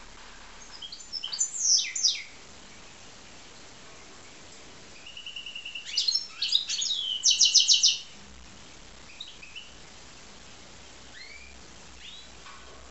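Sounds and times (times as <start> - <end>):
finch singing trills: 0.6 - 2.9, 5.0 - 8.1, 9.1 - 9.8, 11.1 - 12.4.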